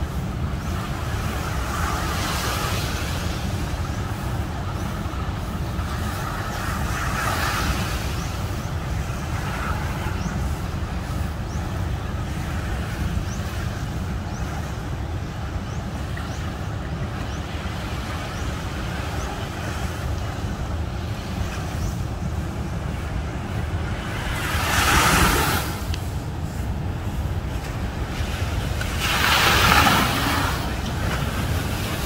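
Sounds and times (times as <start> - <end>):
wind rumbling on microphone: 0.0 - 32.0
ocean surf breaking: 16.7 - 32.0.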